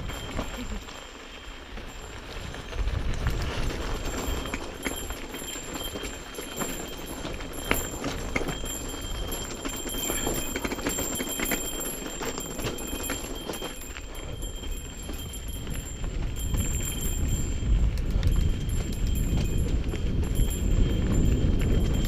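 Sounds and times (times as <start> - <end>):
bike rattling: 0.0 - 22.0.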